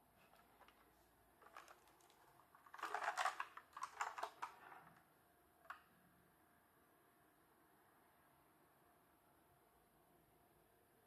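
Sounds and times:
keyboard plastic clicks and clacks: 1.4s - 4.6s.

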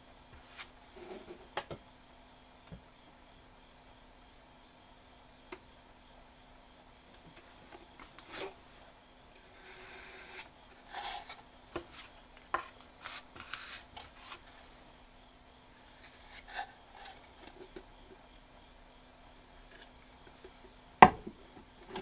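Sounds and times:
spatula scraping paste: 9.5s - 14.5s.

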